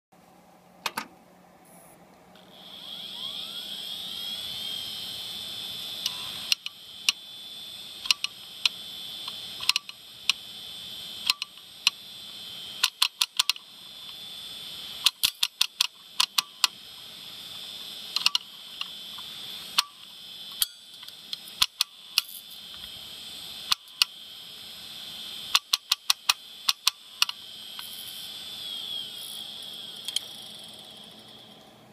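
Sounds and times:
hard drive whine: 0:00.2 - 0:31.9
sharp metallic clicks: 0:06.0 - 0:07.2, 0:08.0 - 0:10.4, 0:11.2 - 0:12.0, 0:12.8 - 0:13.7, 0:15.0 - 0:16.8, 0:18.1 - 0:19.0, 0:19.7 - 0:22.4, 0:25.5 - 0:28.1, 0:29.2 - 0:31.7.

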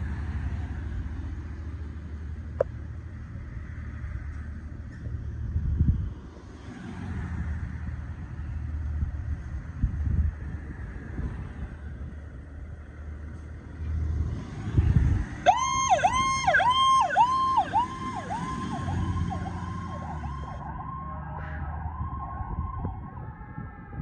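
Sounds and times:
fire engine diesel rumble: 0:07.6 - 0:24.0
electronic siren: 0:15.4 - 0:24.0.

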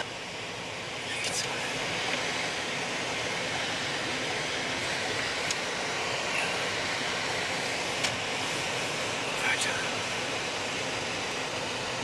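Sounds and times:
car cabin hiss: 0:07.4 - 0:10.1.

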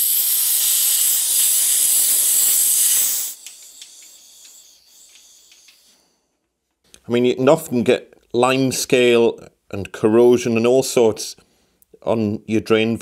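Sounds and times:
compressed air hissing: 0:00.0 - 0:06.3.

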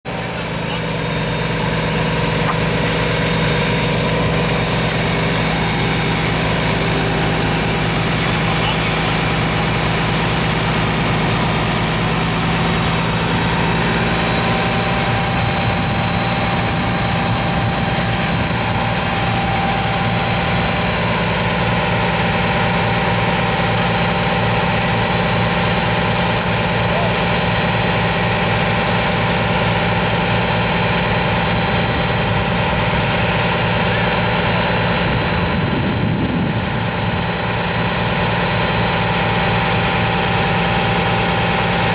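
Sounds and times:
truck engine running: 0:00.0 - 0:41.9
water spraying hiss: 0:00.1 - 0:22.2.

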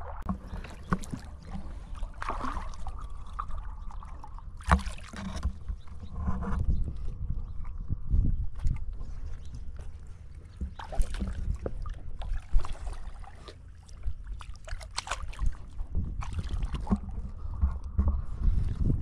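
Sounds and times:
low rumble: 0:00.0 - 0:13.2
water splashing and sloshing: 0:00.0 - 0:19.0.

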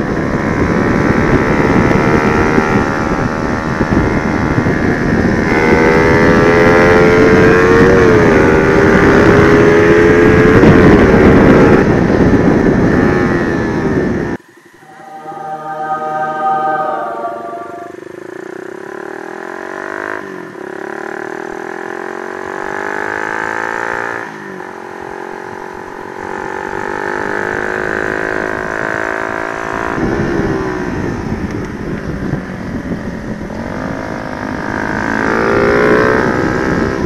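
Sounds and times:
motorcycle engine accelerating: 0:00.0 - 0:15.2, 0:18.0 - 0:37.0
wind rumbling on microphone: 0:00.0 - 0:16.5.

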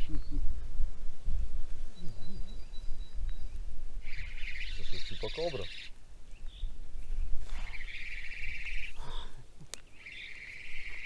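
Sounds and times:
wind on microphone: 0:00.0 - 0:05.4
insects chirring: 0:07.5 - 0:09.2, 0:09.9 - 0:11.0.

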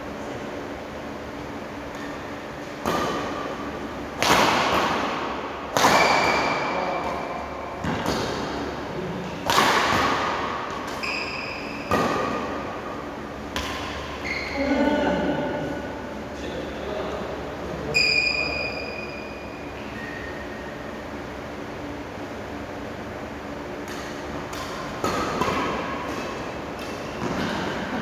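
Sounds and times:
rackets hitting shuttlecock: 0:01.8 - 0:14.3, 0:23.7 - 0:27.9.

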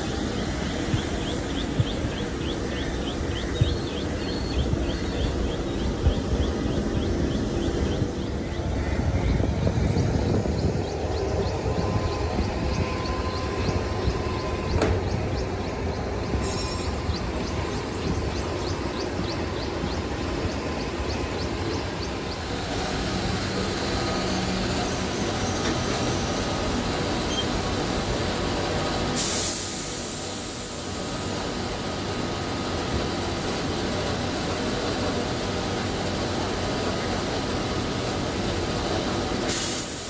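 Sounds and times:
sharp hiss: 0:22.4 - 0:33.5, 0:34.9 - 0:40.0.

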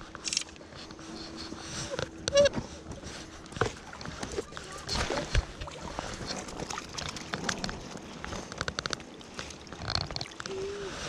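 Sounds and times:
water lapping and splashing: 0:00.0 - 0:11.0
fishing gear clicks and knocks: 0:01.9 - 0:10.6.

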